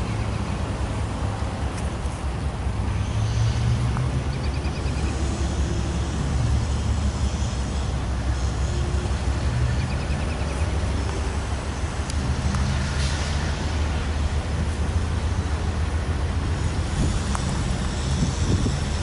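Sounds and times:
diesel locomotive rumble: 0:00.0 - 0:19.0.

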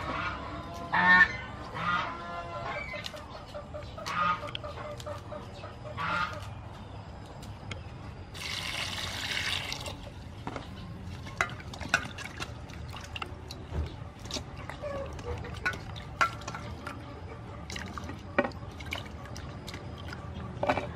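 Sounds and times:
poultry calling: 0:00.0 - 0:06.7
water splashing in a bowl: 0:08.3 - 0:10.2, 0:11.1 - 0:20.9.

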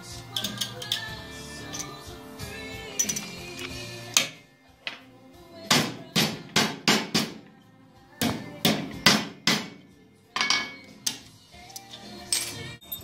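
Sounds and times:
hammer striking metal: 0:08.2 - 0:09.8.

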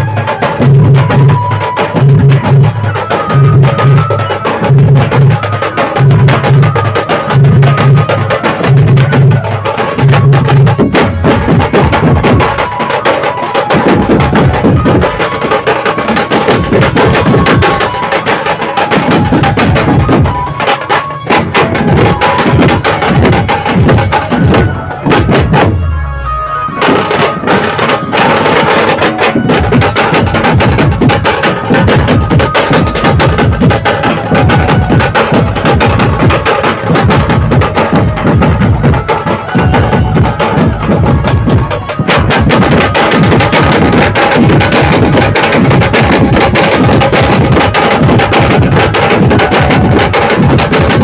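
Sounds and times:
drums beaten in fast rhythm: 0:00.0 - 0:51.0
melody of held notes: 0:00.2 - 0:28.2.

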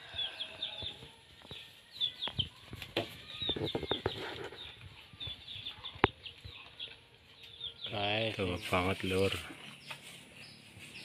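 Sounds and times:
birds chirping: 0:00.0 - 0:11.0
cattle rustling in hay: 0:08.4 - 0:11.0.

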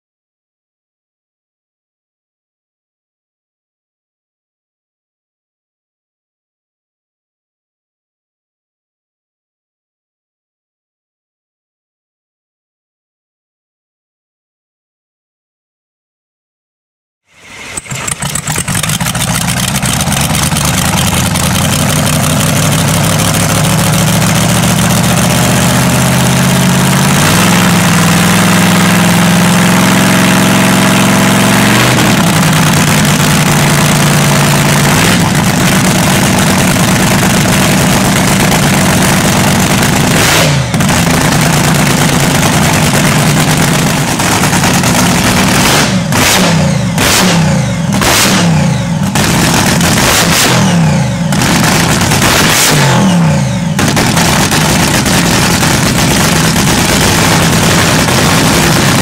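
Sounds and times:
dragster engine revving: 0:17.4 - 0:59.0.

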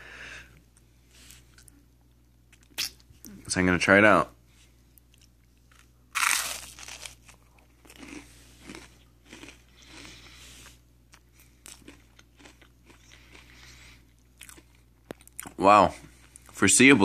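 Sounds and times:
crunchy chewing of rice cake: 0:05.0 - 0:16.6
loud bite crunch: 0:05.7 - 0:15.6.

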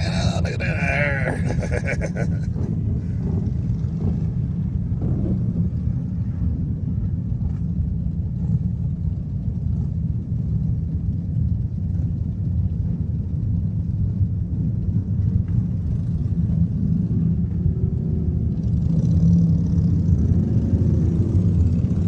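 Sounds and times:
motorcycles idling: 0:00.0 - 0:14.2.

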